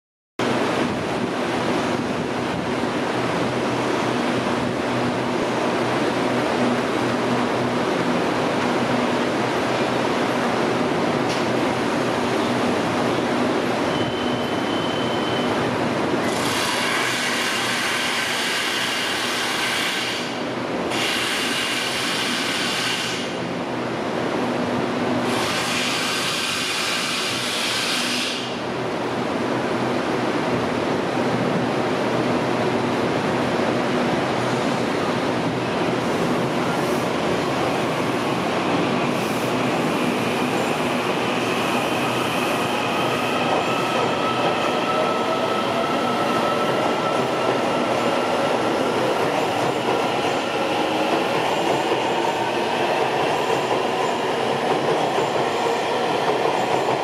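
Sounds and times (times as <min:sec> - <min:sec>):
short high beep: 0:13.9 - 0:15.6.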